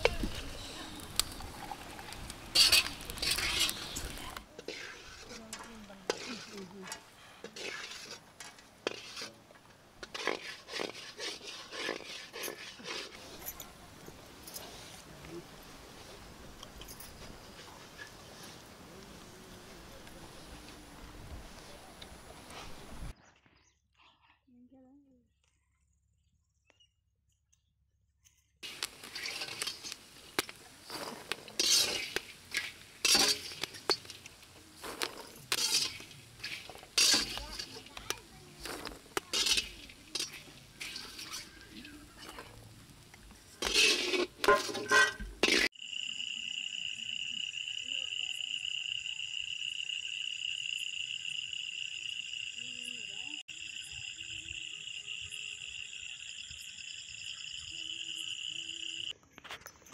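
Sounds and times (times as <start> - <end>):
metal bowls rustling and clinking: 0.0 - 15.1, 16.1 - 18.6, 28.6 - 45.7.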